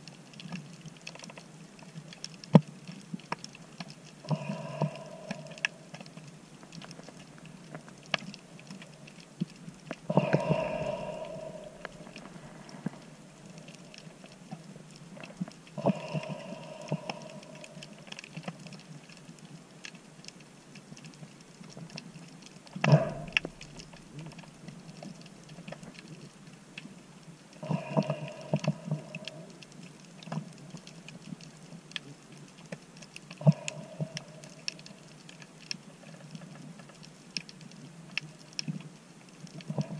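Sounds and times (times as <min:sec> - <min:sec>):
crackle of snapping shrimp: 0:00.0 - 0:39.9
hollow pitched underwater swell: 0:10.1 - 0:14.3.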